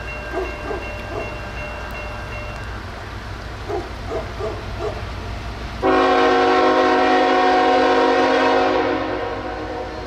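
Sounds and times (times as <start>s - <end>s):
locomotive air horn blast: 5.8s - 10.0s.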